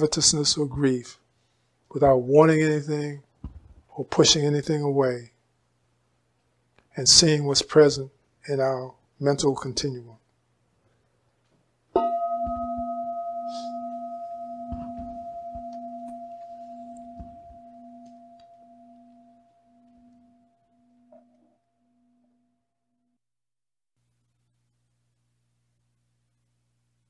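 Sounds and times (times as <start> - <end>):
singing bowl ringing: 12.0 - 22.6
low throbbing hum: 12.4 - 20.5.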